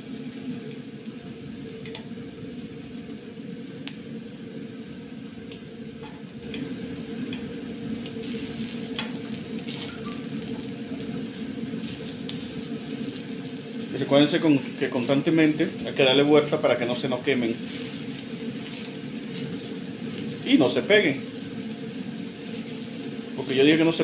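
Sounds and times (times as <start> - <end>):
gas burner low rumble: 0.0 - 24.0
vegetables sizzling on foil: 0.0 - 24.0
metal utensil scraping foil: 9.6 - 10.1.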